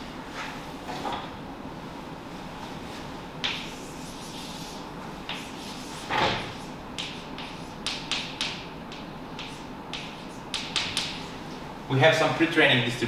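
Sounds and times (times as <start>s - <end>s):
chalk tapping on blackboard: 3.4s - 11.2s.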